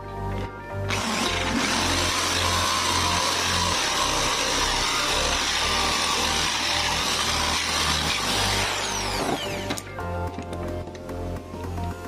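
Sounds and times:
electric drill cutting wood: 0.9 - 10.0.

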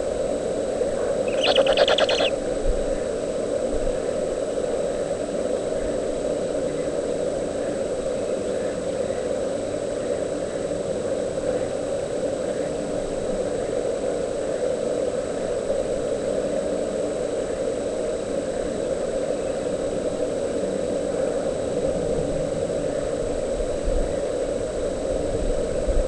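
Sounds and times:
steady droning hum: 0.0 - 2.5
faint high whine: 1.3 - 2.4.

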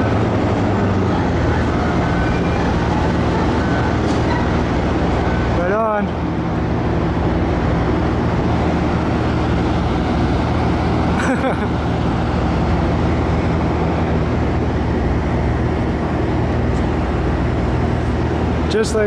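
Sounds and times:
excavator diesel engine droning: 0.0 - 19.0.

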